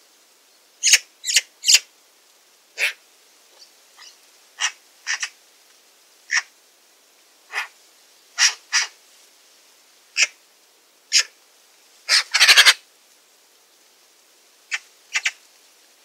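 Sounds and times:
magpie chacking calls: 0.8s - 1.8s, 4.0s - 5.4s, 6.3s - 6.5s, 7.5s - 7.7s, 8.4s - 9.0s, 12.1s - 12.8s, 14.7s - 15.4s
magpie rattling chatter: 4.0s - 5.3s, 8.4s - 8.9s, 12.1s - 12.8s, 14.7s - 15.3s.

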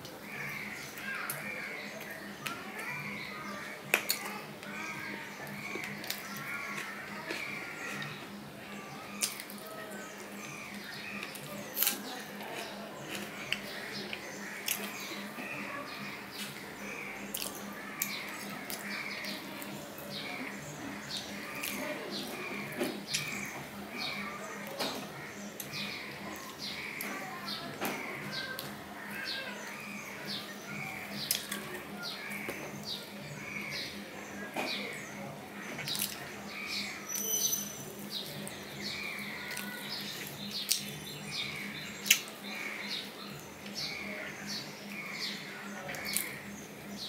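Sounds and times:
crackly clicks of tearing bread: 11.2s - 15.1s, 35.7s - 36.4s, 38.3s - 41.0s.

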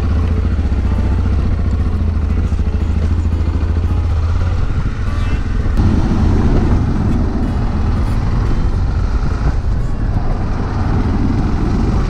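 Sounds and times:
motorcycle engine running: 0.0s - 12.0s
truck driving alongside: 0.0s - 12.0s
wind rushing past microphone: 3.4s - 12.0s.

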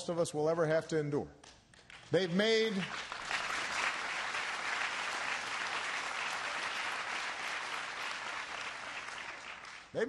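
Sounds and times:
audience applauding: 1.8s - 10.0s.

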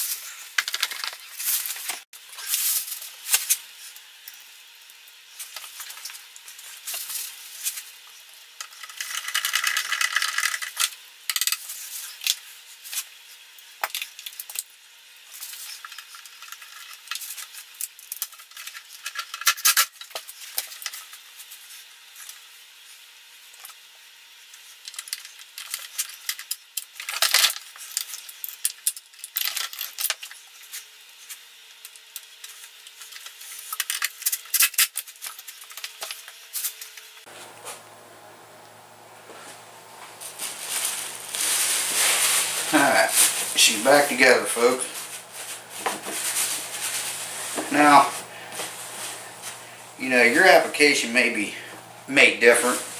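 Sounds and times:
plastic parts and tools clattering: 0.5s - 2.0s, 8.6s - 11.6s, 24.8s - 30.5s, 32.4s - 36.9s.

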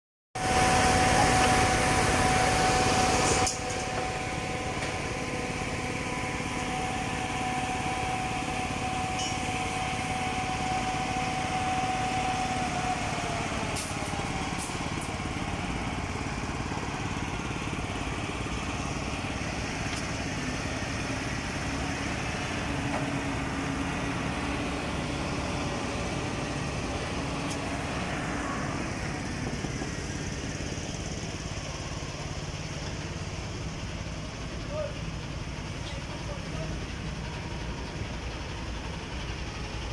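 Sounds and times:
construction machinery engine drone: 0.4s - 39.9s.

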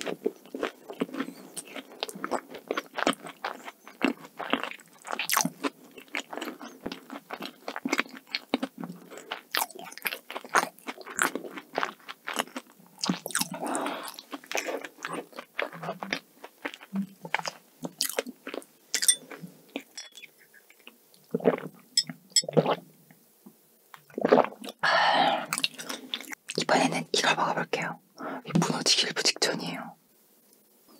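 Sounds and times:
chewing cake: 0.0s - 22.8s, 25.5s - 26.6s.

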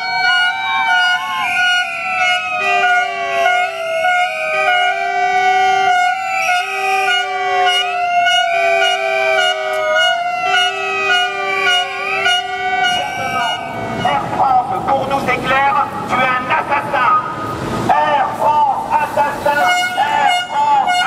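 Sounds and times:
electronic siren rising and falling: 0.0s - 14.3s.

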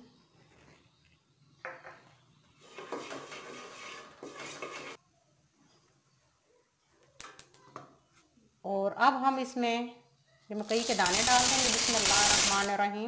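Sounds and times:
wooden spatula scraping metal pot: 2.7s - 5.0s, 10.6s - 12.8s.

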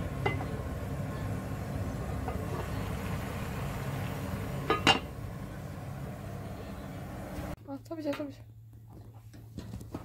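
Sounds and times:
low kitchen rumble: 0.0s - 7.6s.

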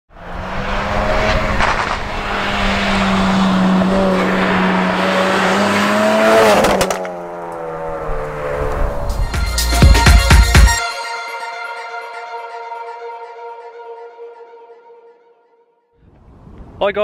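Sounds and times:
car engine passing by: 0.1s - 9.3s.

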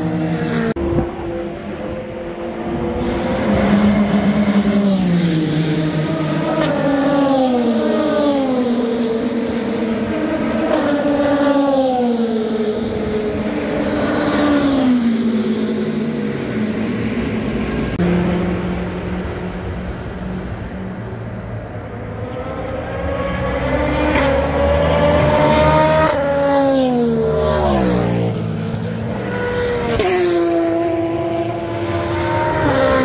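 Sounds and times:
steady engine drone: 0.0s - 11.3s, 15.3s - 26.3s
race cars passing by: 0.0s - 33.0s.

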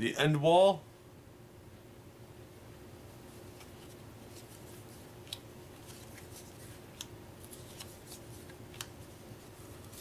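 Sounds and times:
faint steady hum: 0.0s - 10.0s
cards clicking and crackling: 3.6s - 9.0s.

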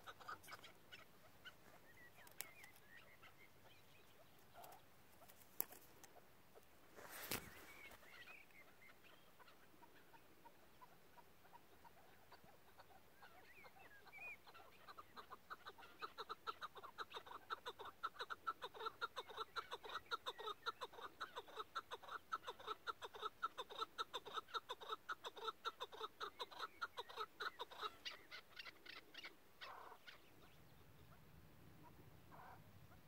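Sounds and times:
partridge chuckling call: 0.0s - 3.4s, 14.9s - 30.2s.

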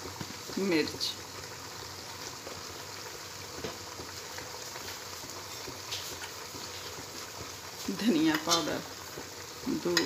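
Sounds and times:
faint crackles: 0.0s - 10.0s
meat sizzling in oil: 0.0s - 10.0s.

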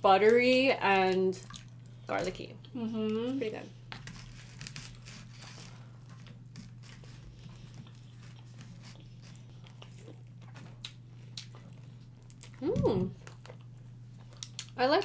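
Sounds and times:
low steady hum: 0.0s - 15.0s
chewing and biting food: 3.9s - 14.8s.

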